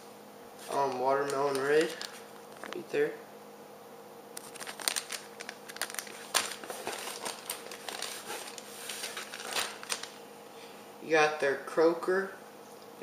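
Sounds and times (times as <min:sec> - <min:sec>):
plastic packaging crinkling: 0:00.6 - 0:02.8, 0:04.4 - 0:10.2.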